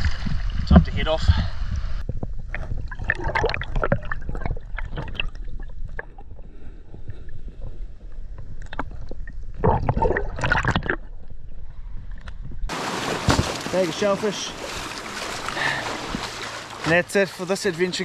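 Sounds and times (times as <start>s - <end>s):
water sloshing and gurgling: 0.0s - 18.0s
water splashing: 2.4s - 6.3s, 8.6s - 11.2s, 12.7s - 18.0s.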